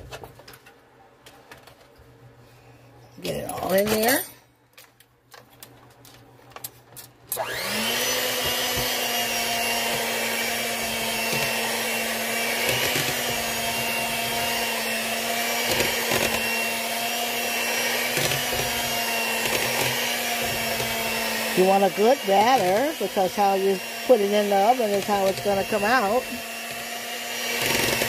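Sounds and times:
electric hand mixer motor: 7.4 - 28.0.

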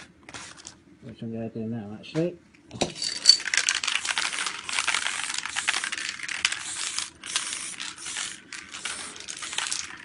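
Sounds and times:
spray paint can hissing: 3.7 - 10.0.

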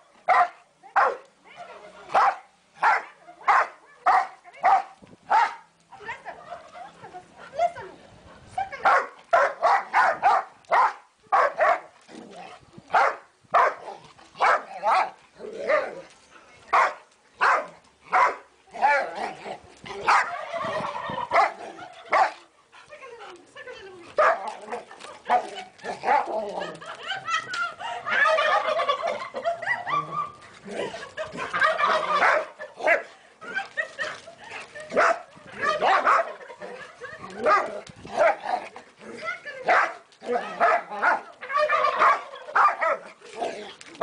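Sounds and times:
dog barking: 0.3 - 1.2, 2.2 - 5.6, 8.8 - 11.9, 13.0 - 13.8, 14.4 - 15.1, 16.8 - 18.4, 35.8 - 36.3, 41.8 - 43.0.

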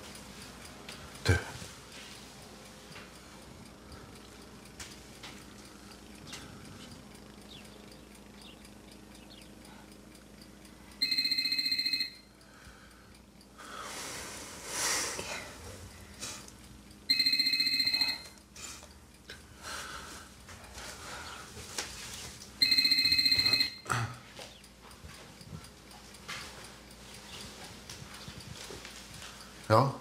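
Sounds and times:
telephone ringing: 11.0 - 12.4, 17.0 - 18.4, 22.6 - 23.9.

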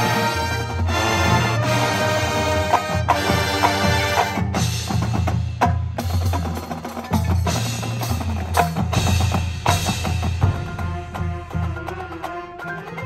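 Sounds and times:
marching band playing: 0.0 - 13.0.

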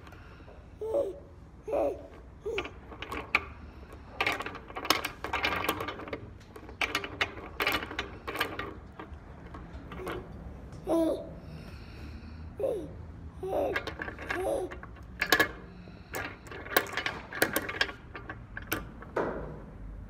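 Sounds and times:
wooden beads clacking on wire: 1.7 - 10.5, 13.4 - 19.1.

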